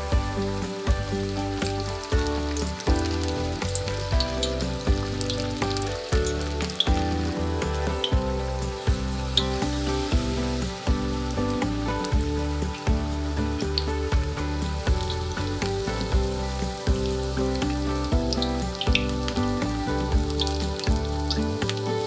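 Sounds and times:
background music with beat: 0:00.0 - 0:22.0
batter sizzling in hot oil: 0:00.0 - 0:22.0.

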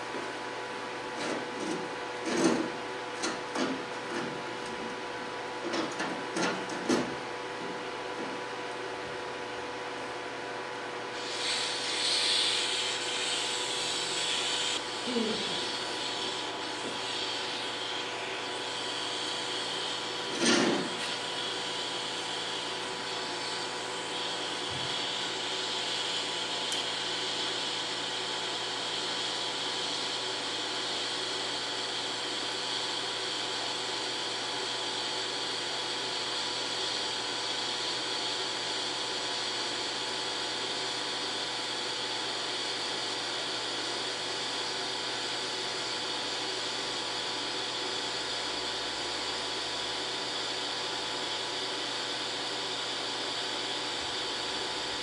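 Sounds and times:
welding arc hissing: 0:11.1 - 0:27.9.

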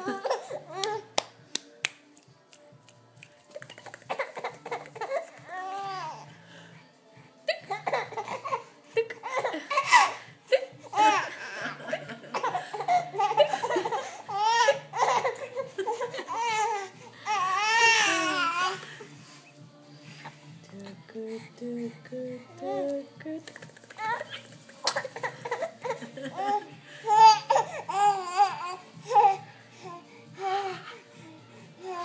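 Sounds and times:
infant giggling: 0:04.1 - 0:06.2, 0:07.5 - 0:18.9, 0:23.9 - 0:29.4.

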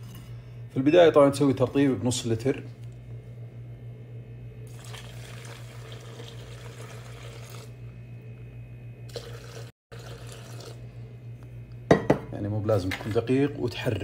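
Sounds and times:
low steady hum: 0:00.0 - 0:14.0
water pouring onto coffee grounds: 0:04.7 - 0:07.7, 0:09.1 - 0:10.8.

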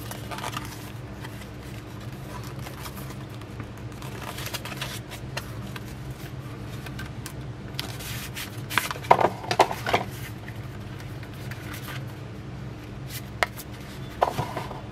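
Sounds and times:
paper rustling and crinkling: 0:00.0 - 0:07.1, 0:07.8 - 0:12.2
steady low hum: 0:00.0 - 0:14.9.

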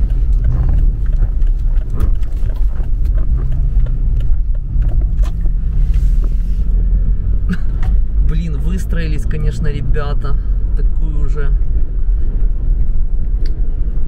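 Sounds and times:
small ticks and knocks: 0:00.0 - 0:05.6
car engine and road rumble: 0:00.0 - 0:14.0.

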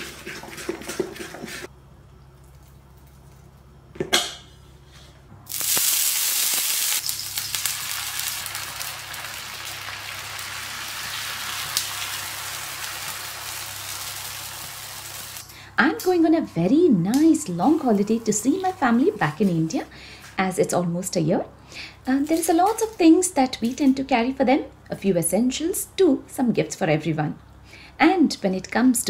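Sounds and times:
batter sizzling on hot pan: 0:05.5 - 0:15.4.

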